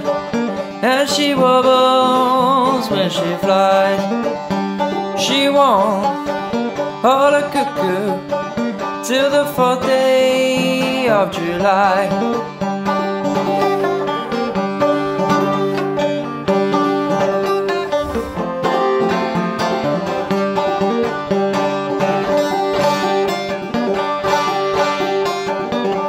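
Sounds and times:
banjo picking fast notes: 0.0 - 26.0.

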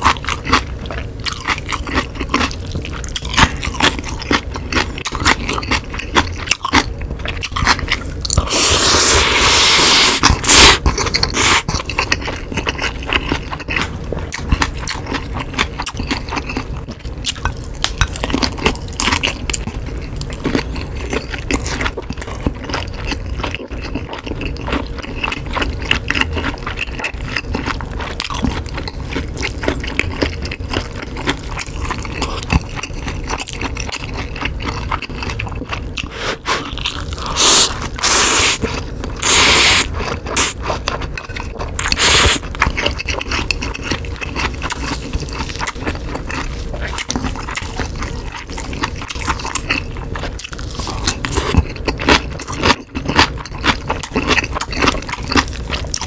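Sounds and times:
person chewing noodles: 0.0 - 56.0
wet mouth clicks: 37.3 - 40.6.

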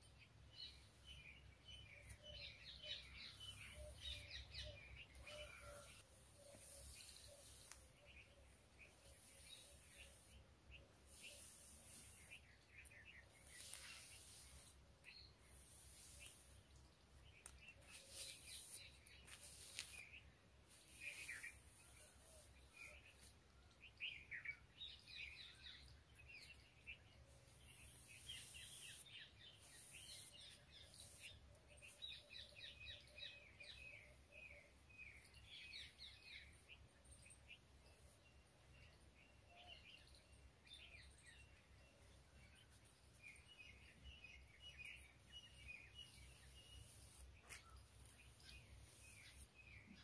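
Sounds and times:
small birds chirping: 0.0 - 50.0.

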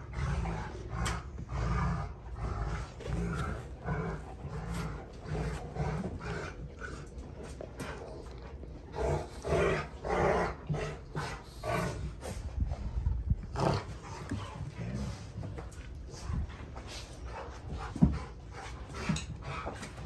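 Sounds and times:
dogs play-growling: 0.0 - 20.0.

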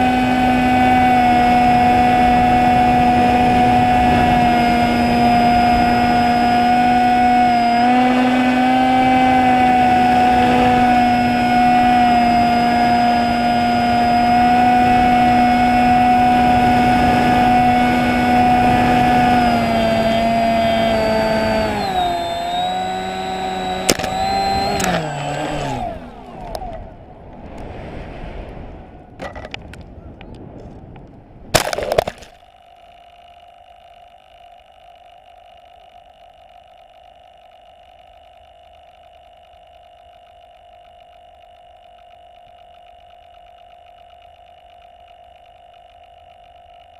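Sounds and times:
model plane motor whine: 0.0 - 30.7, 31.6 - 46.9
faint steady hum: 0.0 - 46.9
rush of air: 27.1 - 29.2.

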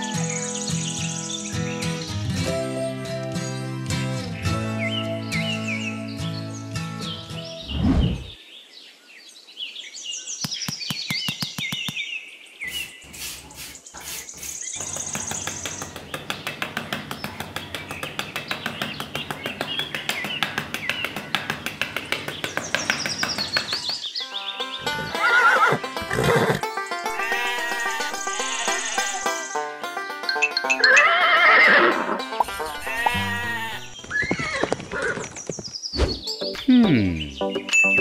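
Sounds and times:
birds chirping: 0.0 - 30.8, 32.4 - 38.0
whoosh: 7.6 - 8.4
trowel scraping sand: 12.7 - 15.4
horse whinnying: 25.0 - 29.2, 30.8 - 35.2.

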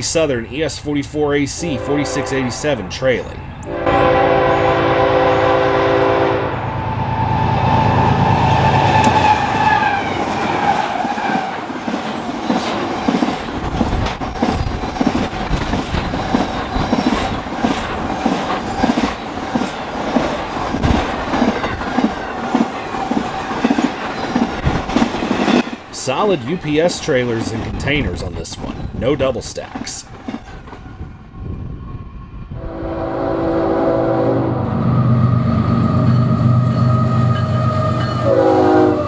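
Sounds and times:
train passing: 0.0 - 39.0
locomotive horn: 1.6 - 2.9, 3.6 - 10.9, 32.5 - 39.0.

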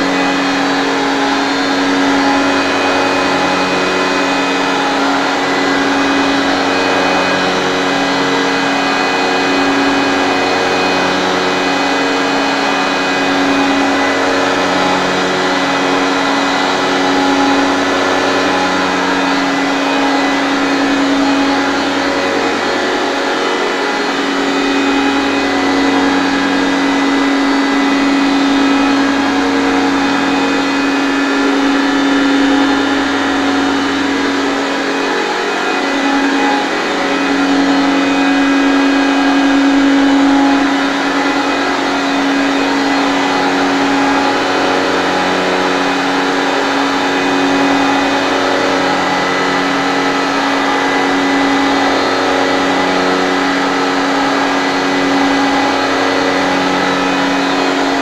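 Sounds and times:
centrifuge humming and whining: 0.0 - 58.0.

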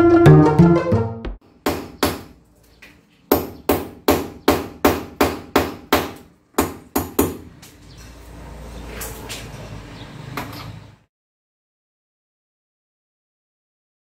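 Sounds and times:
hammer striking wall: 1.6 - 2.3, 3.3 - 7.5.

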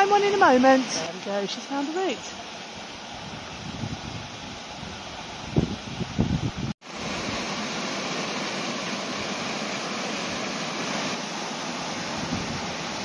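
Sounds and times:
waterfall rushing over rocks: 0.0 - 3.7, 6.8 - 13.0
wind buffeting microphone: 2.9 - 6.8, 12.0 - 13.0.

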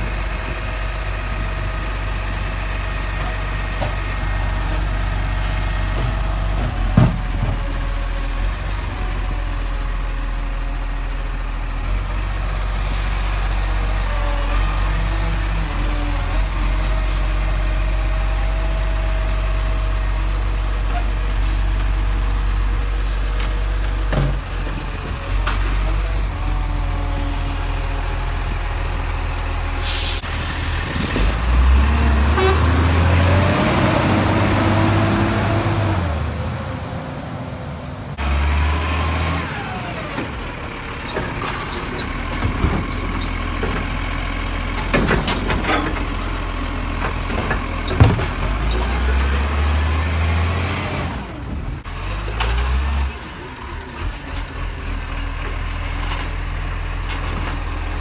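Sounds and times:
diesel truck engine revving: 24.8 - 58.0.

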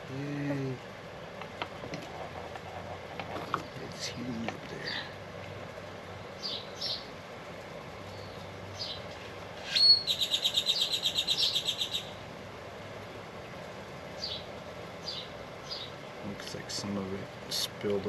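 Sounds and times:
birds chirping: 0.0 - 12.4, 13.2 - 18.0
bird rapid trill: 6.4 - 7.1, 9.6 - 12.2
bird whistled note: 9.7 - 11.9.

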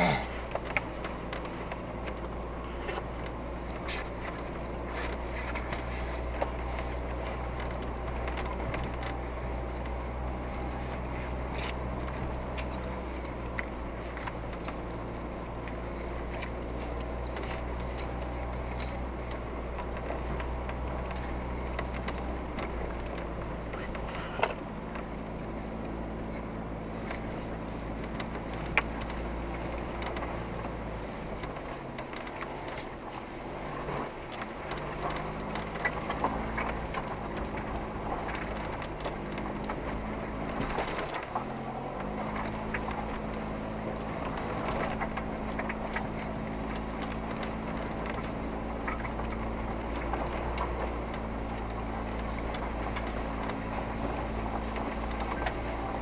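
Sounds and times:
car engine crawling: 0.0 - 56.0
tyres crunching over rocky track: 0.0 - 56.0
small knocks and rattles: 0.3 - 56.0.

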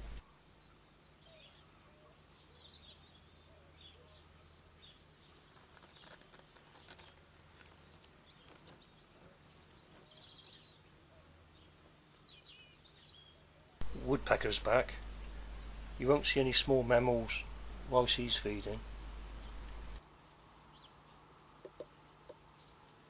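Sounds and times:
steady low hum: 0.0 - 5.6, 13.6 - 23.0
birds chirping and trilling: 0.0 - 20.0, 20.6 - 23.0.

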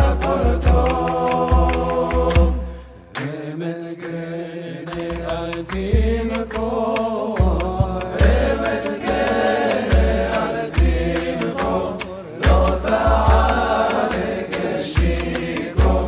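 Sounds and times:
low drum beats: 0.0 - 2.6, 5.1 - 11.8, 12.4 - 16.0
voices chanting: 0.0 - 16.0.

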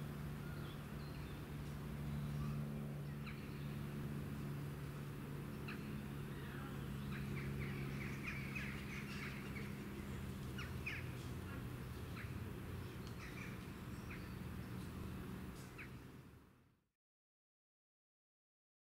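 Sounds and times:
steady low hum: 0.0 - 16.8
small birds chirping: 5.5 - 16.1.

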